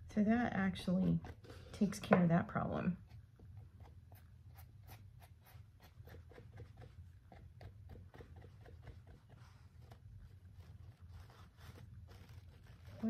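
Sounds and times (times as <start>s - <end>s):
low steady hum: 0.0s - 13.0s
brush scratching strokes: 3.0s - 13.0s.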